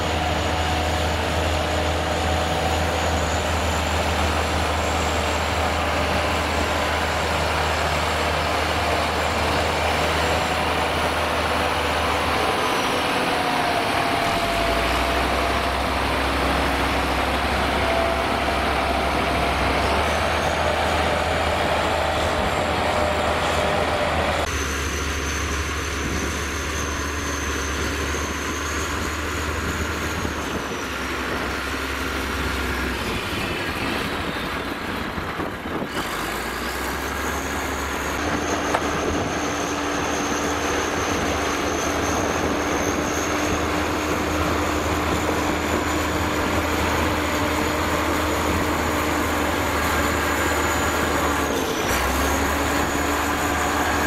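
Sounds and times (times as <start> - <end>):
diesel truck engine under load: 0.0 - 54.0
thin gliding whines: 36.9 - 54.0.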